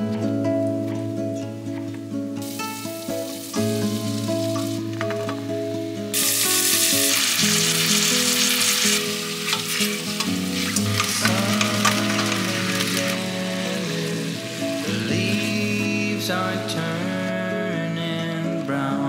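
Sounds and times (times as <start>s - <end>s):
background music: 0.0s - 19.0s
food sizzling in a pan: 2.4s - 17.1s.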